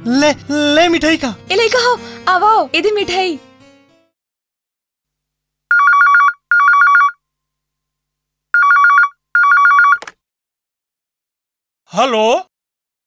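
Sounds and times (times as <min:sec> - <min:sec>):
electronic phone ringtone trill: 0:05.7 - 0:07.2, 0:08.6 - 0:10.0.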